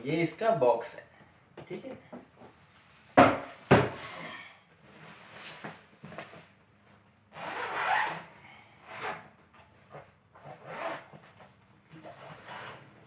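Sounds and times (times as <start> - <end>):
zipper pulled open: 7.3 - 9.2, 9.9 - 12.8.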